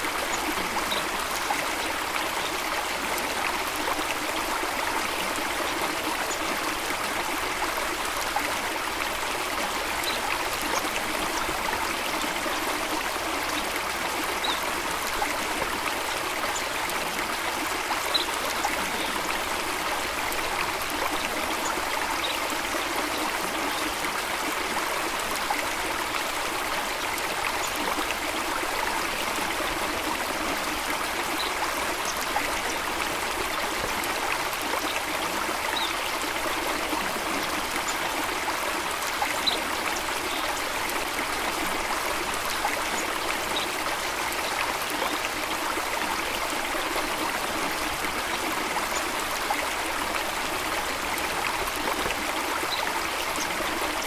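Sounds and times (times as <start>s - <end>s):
stream water running: 0.0s - 54.0s.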